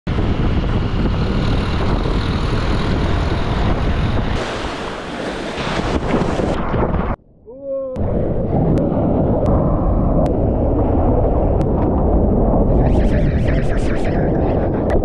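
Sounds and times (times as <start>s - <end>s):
motorbike engine running: 0.1s - 4.4s
wind rushing over microphone: 0.1s - 15.0s.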